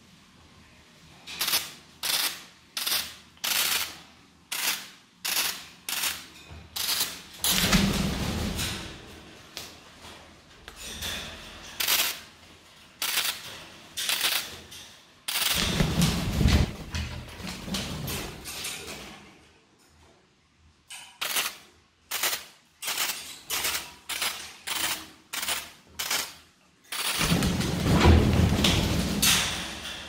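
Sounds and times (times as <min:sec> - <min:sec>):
bird wings flapping: 0:15.4 - 0:18.4, 0:27.0 - 0:29.6.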